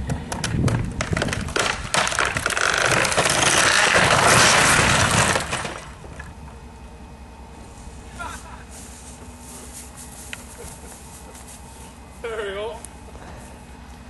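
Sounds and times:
breaking timber cracking: 0.4 - 6.3
roof crashing down: 0.7 - 6.1.

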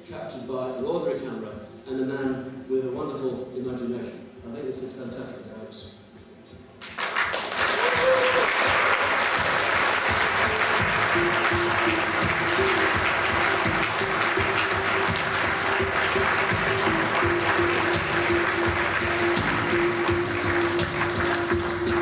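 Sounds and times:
audience applauding: 6.8 - 22.0
soundtrack music slow held notes: 9.6 - 22.0.

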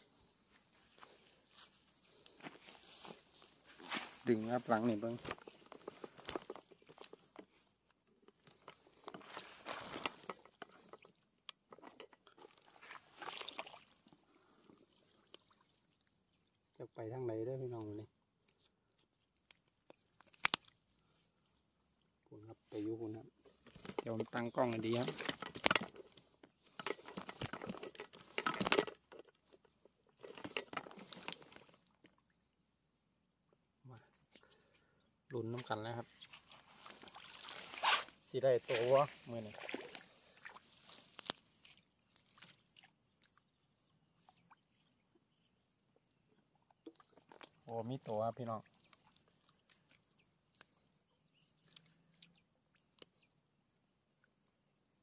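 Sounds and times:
high-pitched insect trill: 0.0 - 55.0
faint sharp clicks: 19.4 - 20.8
crunching handling noise: 23.6 - 31.8.

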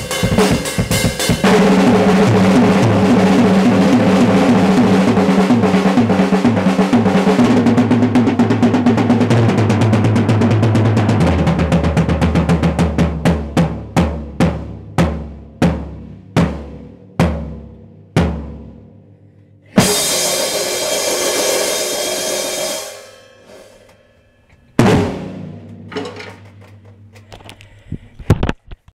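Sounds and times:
drum strikes: 0.0 - 18.6, 19.8 - 27.1
cymbal crash ringing: 19.8 - 26.0.

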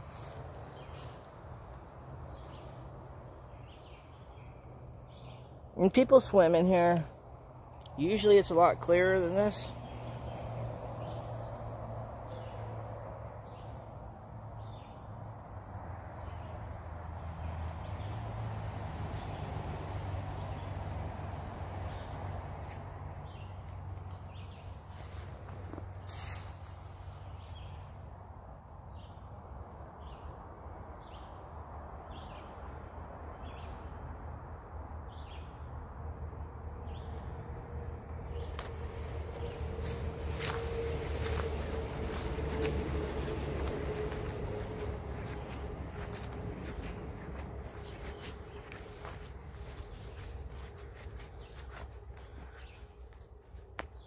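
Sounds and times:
low steady rumble: 35.5 - 53.2
steady low hum: 36.3 - 53.8.

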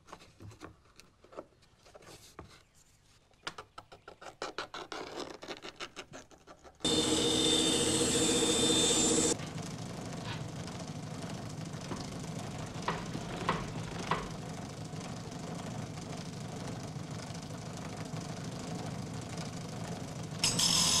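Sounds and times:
workshop machine whining: 6.8 - 21.0
hand tool scraping horn: 6.9 - 9.4.

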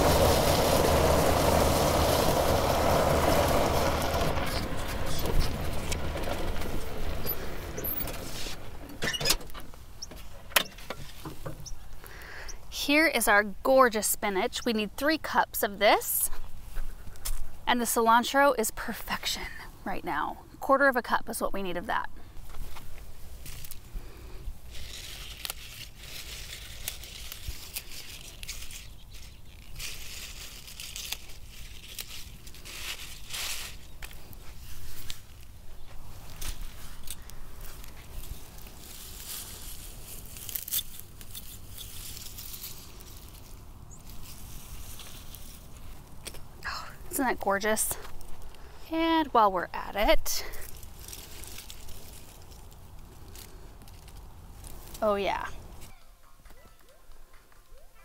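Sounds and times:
leafy rustling: 0.0 - 8.8, 22.2 - 57.8
vehicle rolling over gravel: 0.0 - 11.5, 22.5 - 55.9
stems snapping and tearing: 23.4 - 23.8, 24.7 - 35.5, 36.2 - 46.7, 50.6 - 55.0.

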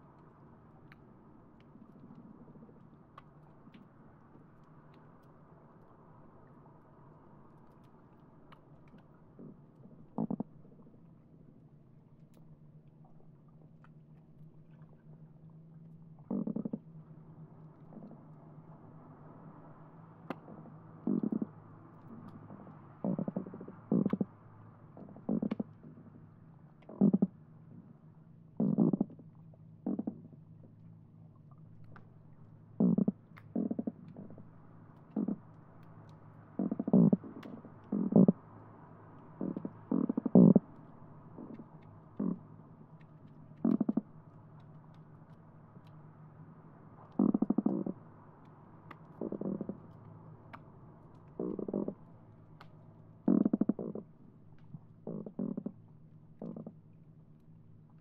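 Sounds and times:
steady low hum: 0.0 - 58.0
fish drumming underwater: 7.8 - 11.1, 11.7 - 17.0, 20.3 - 24.3, 24.9 - 26.1, 26.8 - 28.0, 28.6 - 30.5, 31.3 - 38.4, 39.2 - 46.1, 46.7 - 56.8
faint sharp clicks: 49.9 - 51.6.

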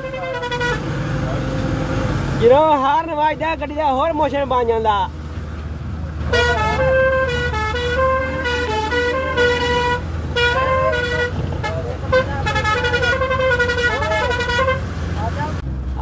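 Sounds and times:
musical vehicle horn: 0.0 - 1.7, 6.2 - 14.9
moving vehicle hum: 0.0 - 16.0.

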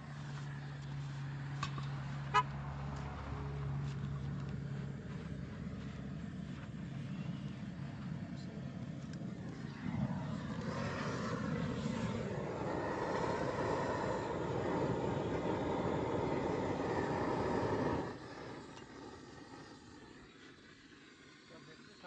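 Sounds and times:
faint hum: 0.0 - 22.0
motor running: 8.8 - 22.0.

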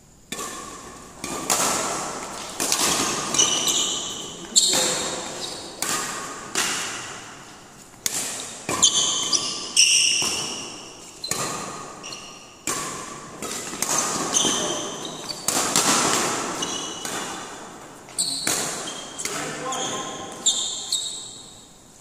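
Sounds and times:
rackets striking shuttlecock: 0.3 - 21.6
shoes squeaking on floor: 2.3 - 5.9, 8.6 - 12.6, 13.4 - 21.7.

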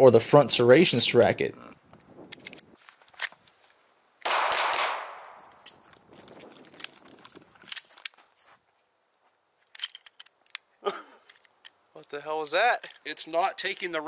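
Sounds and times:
gun handling clicks: 1.9 - 3.5, 4.2 - 8.2, 9.6 - 12.2
pistol shot: 4.2 - 5.5.

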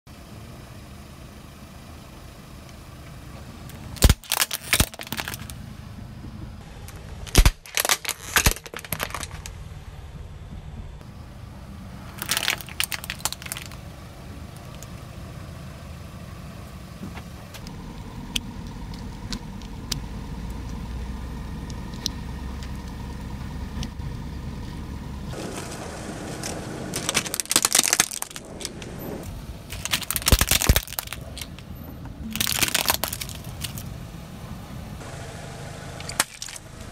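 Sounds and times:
car humming: 0.1 - 36.9
plastic toy cracking under tyre: 4.0 - 5.6, 6.9 - 9.6, 12.2 - 13.8, 26.4 - 28.8, 29.7 - 31.6, 32.3 - 33.9, 36.0 - 36.6.

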